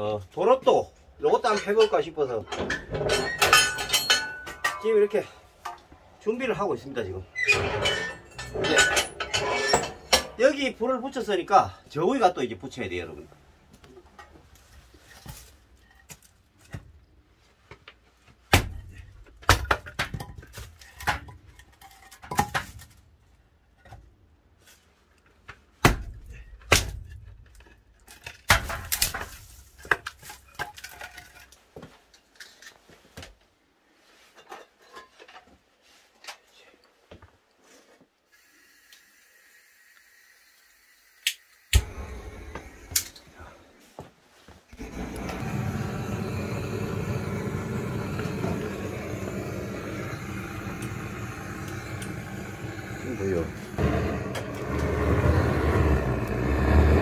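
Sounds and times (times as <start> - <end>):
objects knocking and clinking: 1.5 - 5.1.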